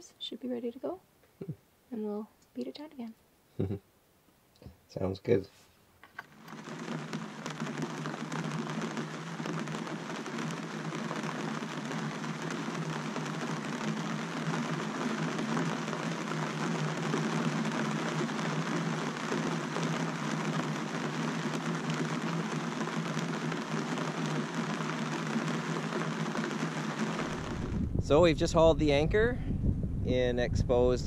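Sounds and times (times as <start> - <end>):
low steady hum: 0.0 - 5.6
rain on canvas: 6.2 - 28.4.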